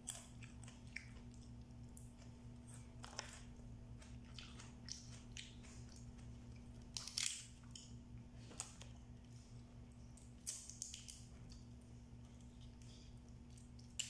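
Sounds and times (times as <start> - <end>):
close-up chewing: 0.0 - 14.0
crab shells cracking: 6.8 - 8.0.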